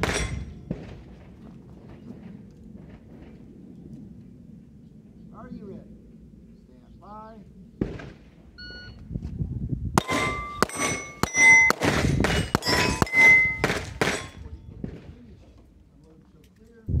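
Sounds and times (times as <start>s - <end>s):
steel plate clanging: 0.0s - 0.6s, 10.0s - 14.5s
pistol shots: 0.0s - 1.2s, 10.0s - 15.1s
electronic timer beep: 8.6s - 9.0s.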